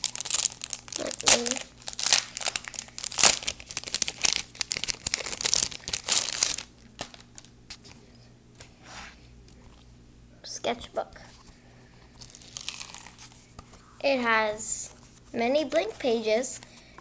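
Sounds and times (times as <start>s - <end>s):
plastic packaging crinkling and tearing: 0.0s - 7.8s, 12.2s - 13.4s.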